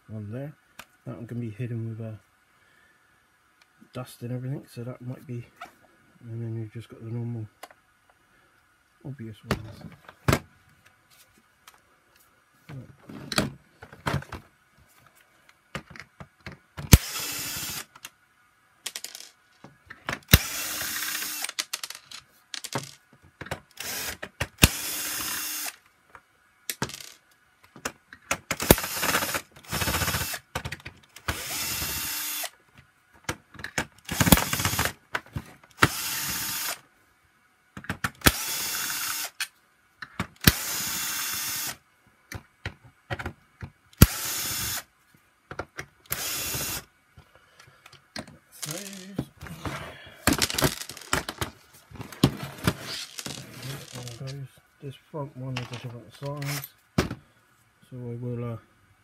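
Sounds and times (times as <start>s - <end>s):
cordless drill whirring: 16.9s - 18.0s, 20.3s - 21.6s, 23.8s - 25.8s, 28.6s - 30.4s, 31.2s - 32.6s, 34.1s - 34.9s, 35.8s - 36.8s, 38.2s - 39.4s, 40.4s - 41.8s, 44.0s - 44.9s, 46.1s - 46.9s.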